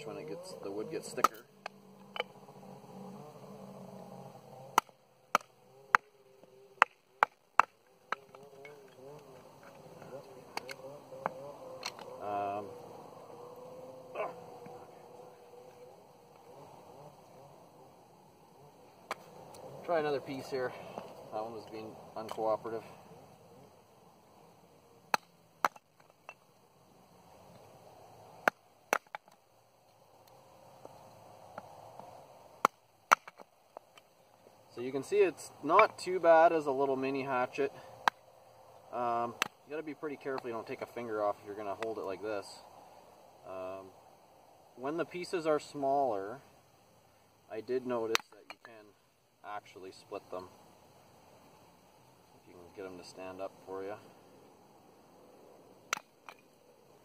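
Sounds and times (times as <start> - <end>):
faint wavering drone: 0.0 - 25.6.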